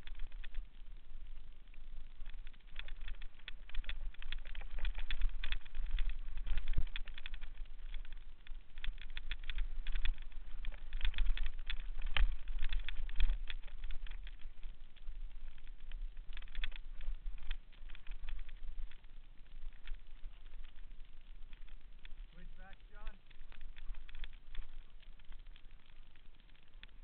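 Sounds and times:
bike rattling over rocks: 0:00.0 - 0:27.0
wind rumble on microphone: 0:00.0 - 0:27.0.

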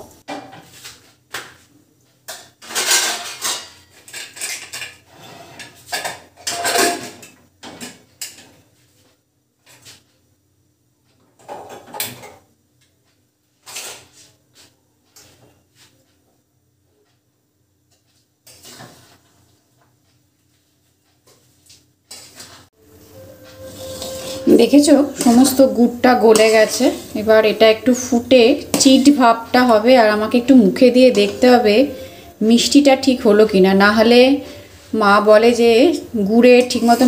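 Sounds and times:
pots and pans clattering: 0:00.3 - 0:00.7, 0:02.3 - 0:08.5, 0:11.2 - 0:12.5, 0:13.6 - 0:14.2.

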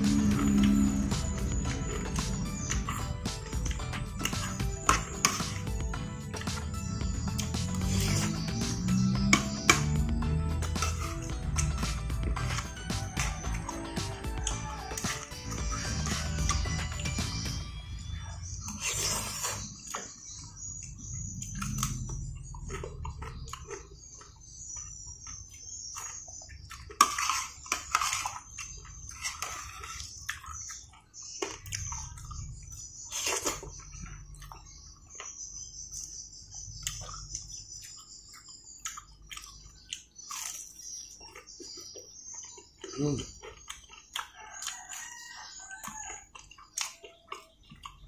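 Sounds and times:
wet chewing and slurping: 0:00.0 - 0:48.0
metal spoon scraping plate: 0:10.6 - 0:13.6, 0:18.6 - 0:19.9, 0:27.0 - 0:30.3.

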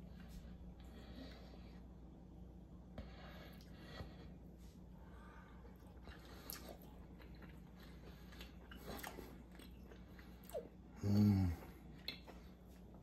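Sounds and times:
man chewing: 0:05.1 - 0:13.0
man humming mmm: 0:11.0 - 0:11.8.

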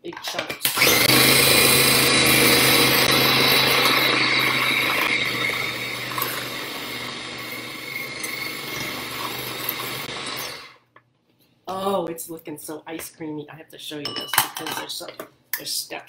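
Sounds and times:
food chopper motor whining: 0:00.6 - 0:10.8.

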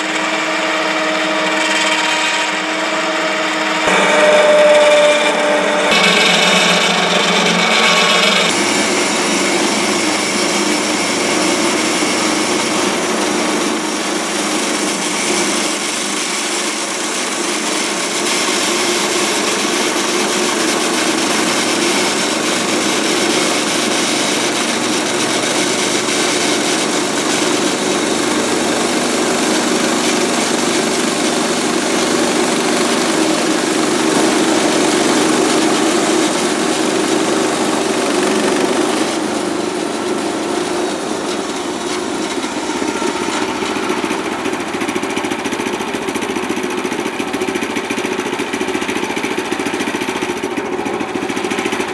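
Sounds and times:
band saw cutting log: 0:00.0 - 0:51.9.

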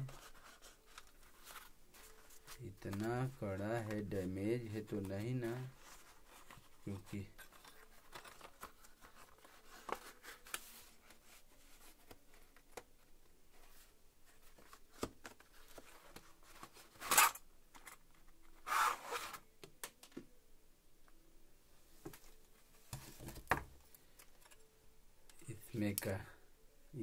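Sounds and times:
packaging clicking and rustling: 0:07.4 - 0:10.6.

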